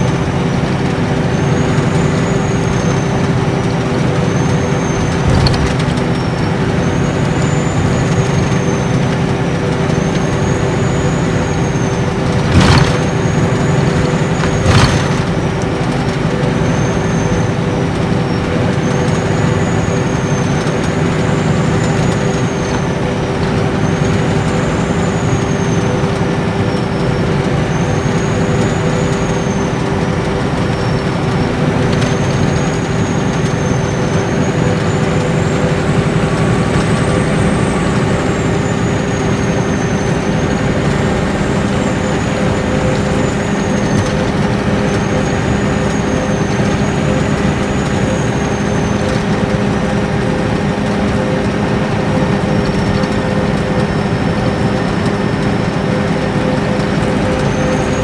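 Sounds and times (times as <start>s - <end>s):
diesel engine running steadily: 0.0s - 58.0s
tyre and road noise: 0.0s - 58.0s
high turbocharger whistle: 9.9s - 15.6s.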